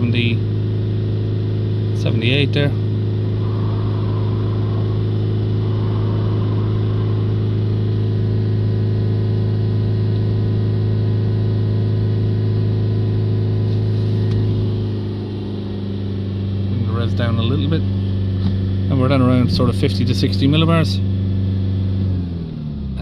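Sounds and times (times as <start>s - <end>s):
diesel engine revving high: 1.2s - 17.6s.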